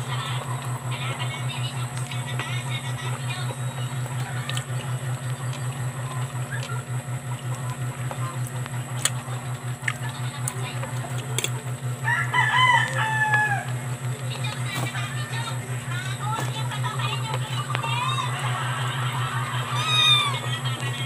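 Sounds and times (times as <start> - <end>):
low pulsing hum: 0.0 - 21.0
rooster crowing: 12.0 - 13.8, 18.3 - 20.5.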